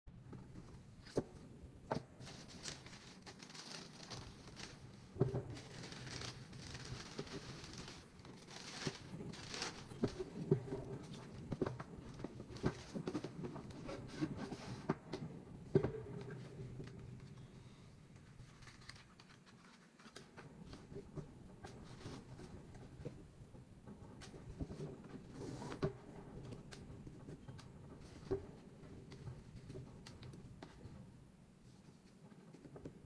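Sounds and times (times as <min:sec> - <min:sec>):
tissue paper rustling: 0:01.9 - 0:14.8, 0:18.3 - 0:20.8.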